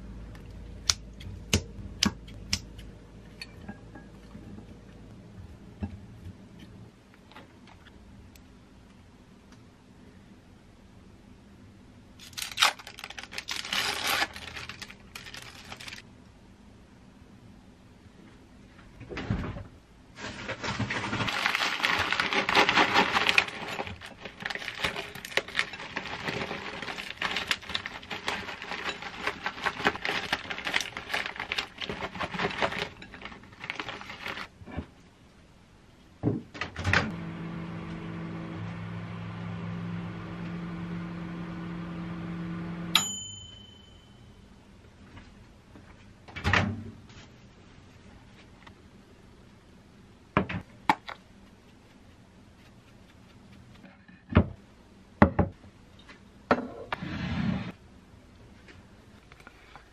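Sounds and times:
plastic bag crinkling: 12.2 - 16.0, 20.2 - 34.5
microwave oven humming: 36.7 - 44.6
microwave beep: 42.7 - 44.3.

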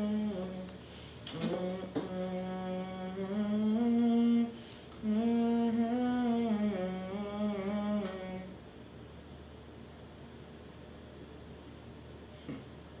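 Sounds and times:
man humming a slow tune: 0.0 - 8.6.

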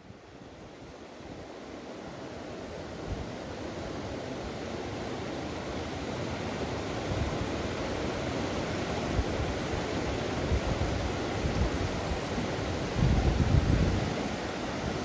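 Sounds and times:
river water rushing: 0.0 - 15.0
wind buffeting microphone: 10.5 - 15.0.

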